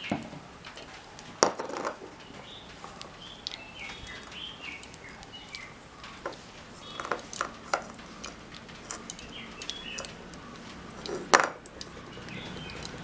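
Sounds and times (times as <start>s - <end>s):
birds chirping: 0.0s - 13.0s
utensils clattering: 0.0s - 13.0s
kitchen utensils clinking: 6.1s - 13.0s.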